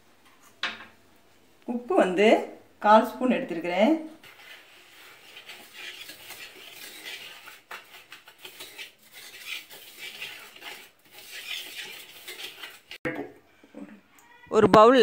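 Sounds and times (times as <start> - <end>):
fork scraping and clinking in bowl: 4.2 - 13.0.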